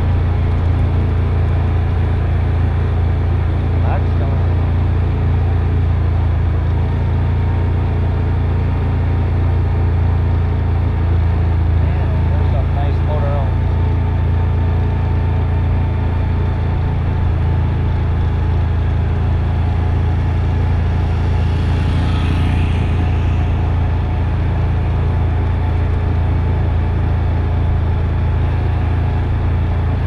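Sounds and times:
atv engine droning: 0.0 - 30.0.

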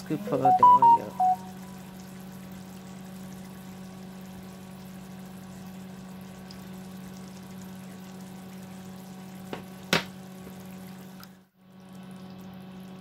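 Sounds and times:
stew bubbling in a pot: 2.1 - 11.2.

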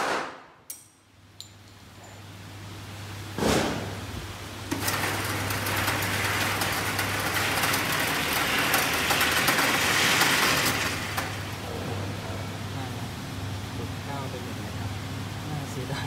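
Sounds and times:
target carrier whirring rattle: 4.7 - 11.6.

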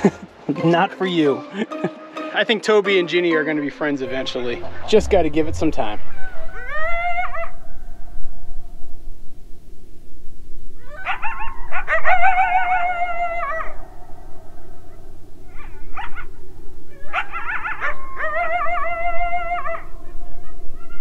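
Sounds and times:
dogs howling together: 6.1 - 7.8, 10.8 - 21.0.

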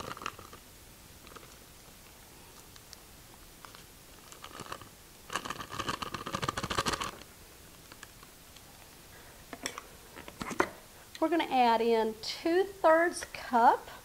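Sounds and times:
paper wrapper crinkling: 1.2 - 3.0, 3.6 - 8.2.

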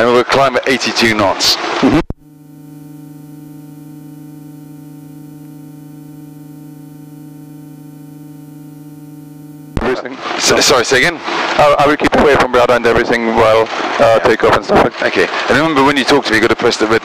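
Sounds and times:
aircraft engine running: 1.6 - 11.6
low intercom hum: 1.9 - 11.0.

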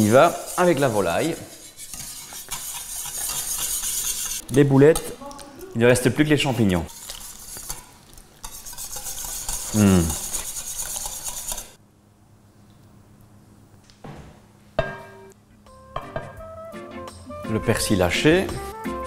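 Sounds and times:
whisk scraping a saucepan: 0.0 - 5.1, 6.4 - 11.8.

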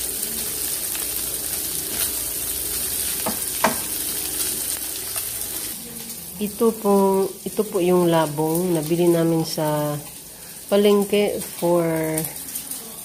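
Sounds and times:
meat sizzling in a wok: 0.0 - 13.0
spatula knocking on pan: 3.2 - 4.0.

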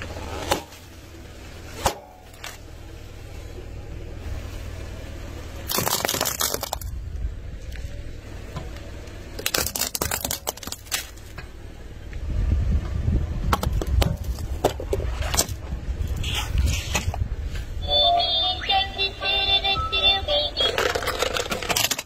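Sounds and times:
tyre rumbling on road: 0.0 - 17.8, 20.5 - 22.0
tyre crushing plastic objects: 5.7 - 7.0, 9.4 - 11.4, 13.5 - 15.6, 20.7 - 22.0.

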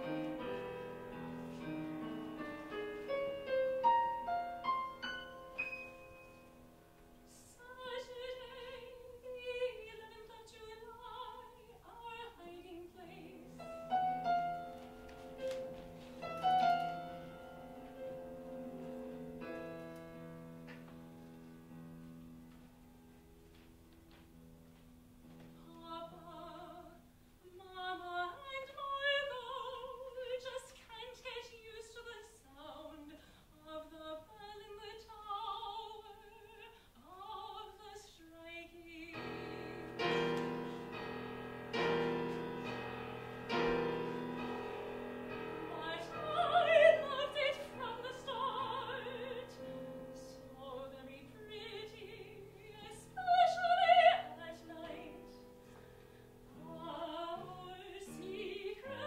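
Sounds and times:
loud repeated piano chords: 0.0 - 7.2, 13.3 - 23.4, 39.1 - 50.6
piano accompaniment: 0.0 - 8.8, 12.7 - 27.2, 39.0 - 59.0
soprano singing opera: 7.3 - 14.4, 25.6 - 40.9, 45.3 - 55.5, 56.5 - 59.0.

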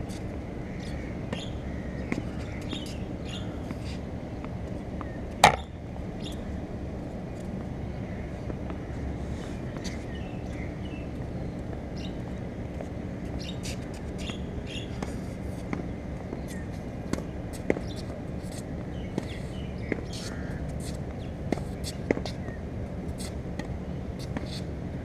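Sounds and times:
small birds chirping: 0.7 - 4.0, 6.2 - 6.5, 7.9 - 12.2, 13.4 - 15.2, 15.8 - 20.6
tennis ball knocks: 5.4 - 5.7.

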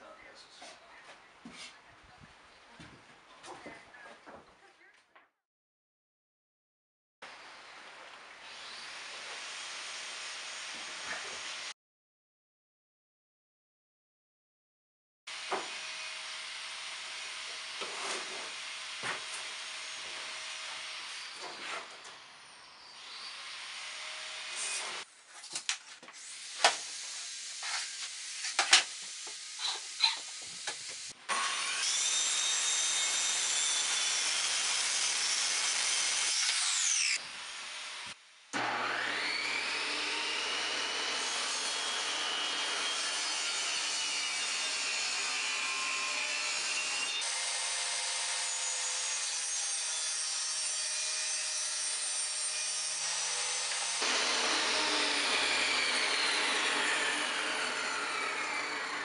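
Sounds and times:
table saw cutting plywood: 8.4 - 11.7, 15.3 - 25.1, 26.2 - 59.0
table saw whining: 26.3 - 59.0
power saw running: 38.6 - 47.3, 53.7 - 59.0.

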